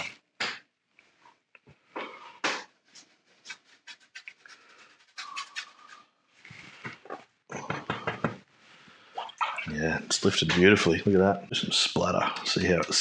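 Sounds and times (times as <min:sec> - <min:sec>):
brush scratching on paper: 0:02.9 - 0:06.9
blotting on paper: 0:03.4 - 0:06.8.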